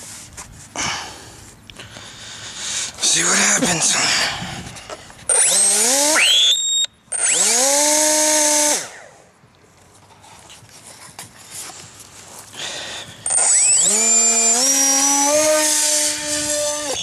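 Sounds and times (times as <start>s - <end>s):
electric motor and propeller whine: 3.0s - 10.1s, 13.0s - 17.0s.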